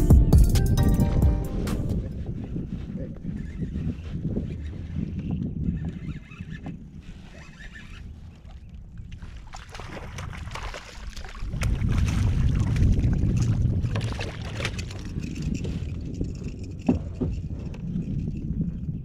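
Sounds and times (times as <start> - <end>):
wind rumble on microphone: 0.0 - 19.0
fish thrashing and splashing: 8.5 - 18.2.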